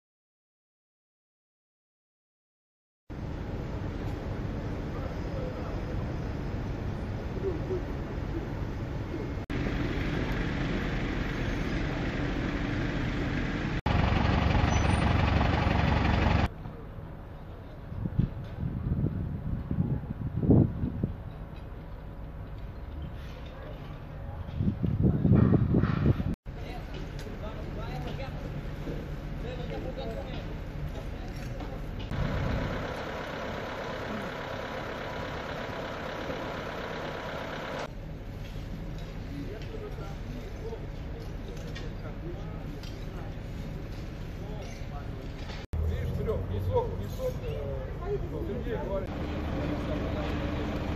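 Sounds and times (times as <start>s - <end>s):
street noise: 3.1s - 50.9s
vehicle engines idling: 3.2s - 17.8s, 26.5s - 50.9s
truck engine idling: 9.6s - 16.5s, 32.1s - 38.0s, 45.8s - 50.9s.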